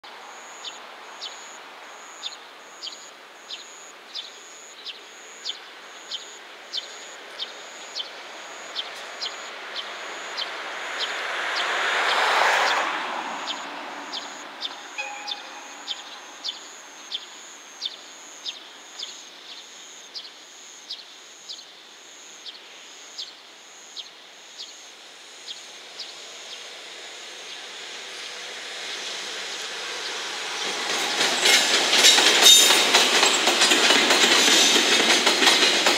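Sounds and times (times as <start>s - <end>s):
train running noise: 6.4s - 17.5s, 25.2s - 35.9s
high repeating chirp: 14.2s - 16.8s.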